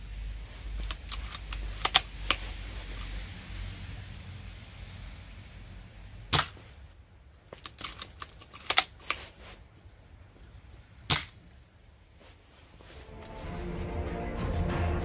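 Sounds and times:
airsoft rifle shots: 6.3 - 6.6, 11.1 - 11.4
rifle bolt clicks: 11.1 - 11.6.

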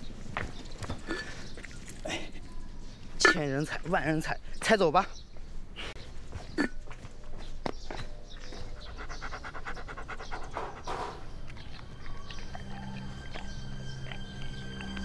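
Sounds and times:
rapid panting breaths: 8.5 - 11.3
sustained low music notes: 10.8 - 15.0.

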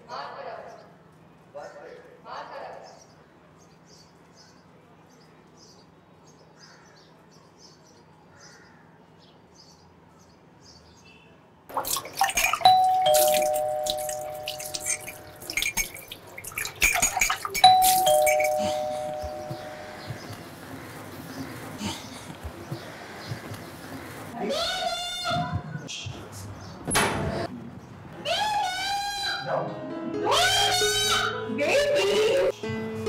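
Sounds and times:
water running from tap: 11.7 - 18.6
two-tone doorbell: 12.6 - 15.4, 17.6 - 20.2
faint high chirps: 17.5 - 20.4.

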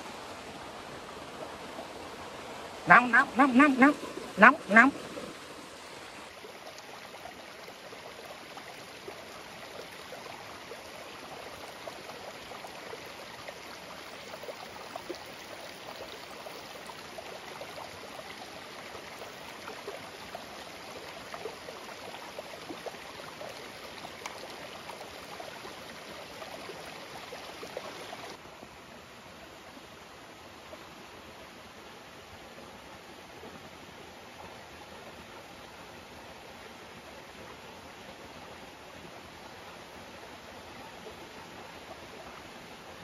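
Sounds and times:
stream running over rocks: 0.0 - 43.0.

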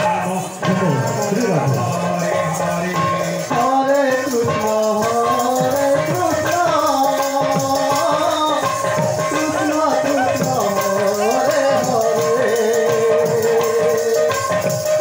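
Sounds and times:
jingling rattling percussion: 0.0 - 15.0.

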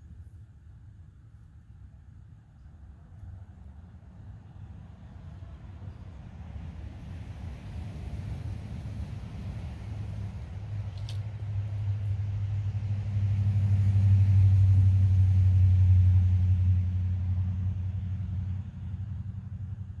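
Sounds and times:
passing vehicle engine rumble: 0.8 - 20.0.

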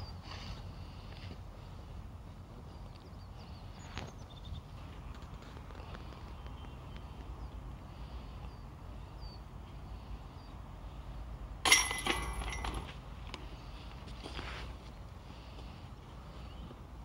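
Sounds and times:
disc striking metal chains: 11.6 - 13.0.

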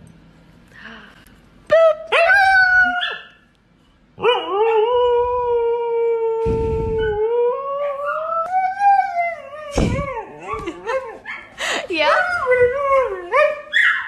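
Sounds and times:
muffled bump: 9.8 - 10.2.

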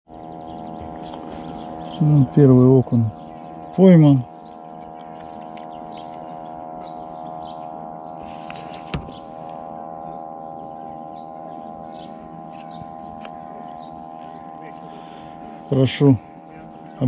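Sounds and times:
droning hum of held tones: 0.1 - 17.0
faint bird chirps: 0.1 - 17.0.

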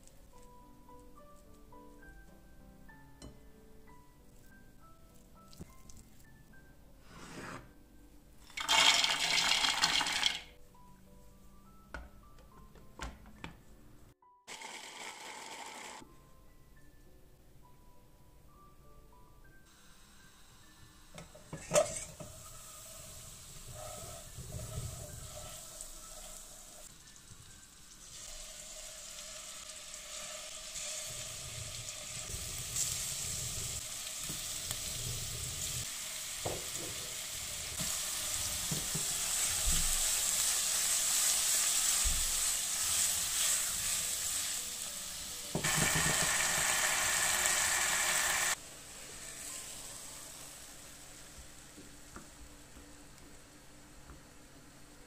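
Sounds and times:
meatballs sizzling in a pan: 19.7 - 52.1.

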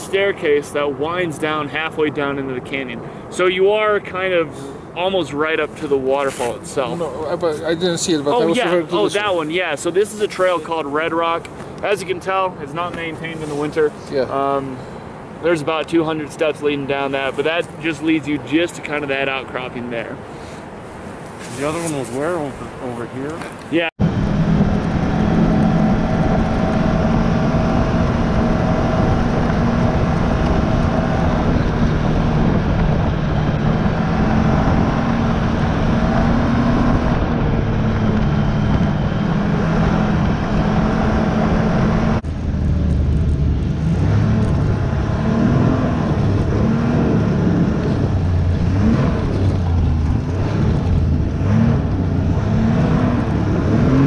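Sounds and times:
snowmobile engine revving: 24.0 - 42.2, 43.7 - 54.0.

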